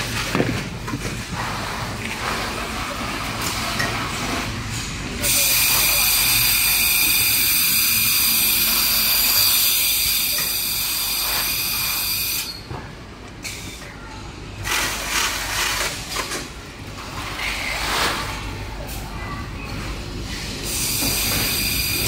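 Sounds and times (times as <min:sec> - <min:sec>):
compressed air hissing: 0:20.6 - 0:22.0.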